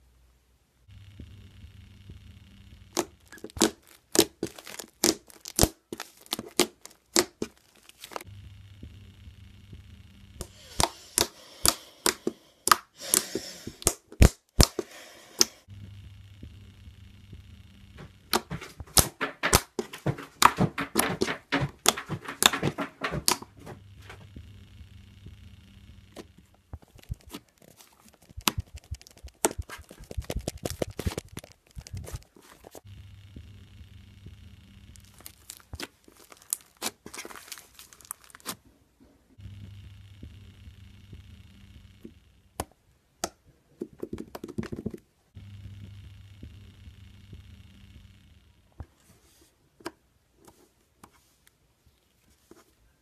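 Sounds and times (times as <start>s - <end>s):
slime popping and crackling: 2.9s - 8.3s, 10.5s - 15.5s, 26.1s - 32.8s, 34.9s - 38.6s.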